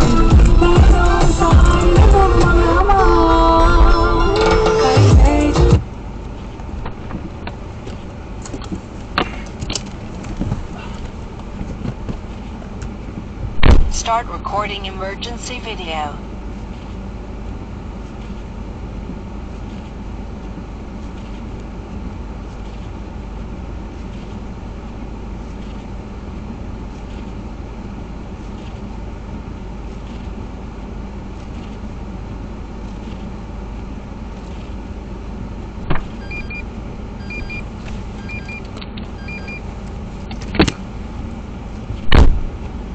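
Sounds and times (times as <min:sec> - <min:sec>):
car interior hum: 0:00.0 - 0:42.9
short electronic beeps: 0:36.2 - 0:36.6, 0:37.2 - 0:37.6, 0:38.2 - 0:38.6, 0:39.2 - 0:39.6.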